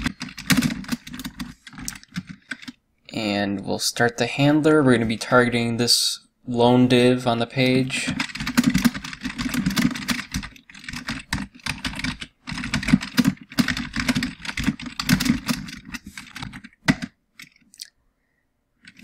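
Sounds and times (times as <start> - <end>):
computer keyboard typing: 0.0 - 2.8, 8.0 - 17.6.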